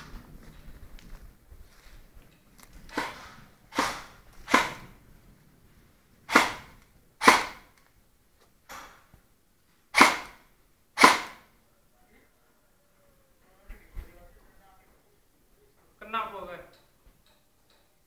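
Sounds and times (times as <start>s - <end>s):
airsoft gun shots: 2.9s - 5.0s, 6.3s - 7.7s, 9.9s - 10.4s, 11.0s - 11.5s.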